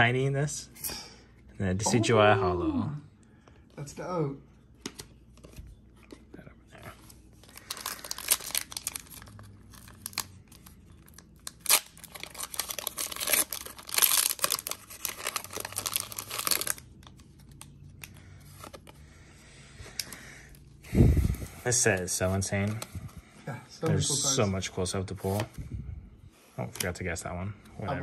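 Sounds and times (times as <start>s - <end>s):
faint card handling: 4.8s - 10.9s
foil wrapper crinkling and tearing: 7.4s - 18.9s.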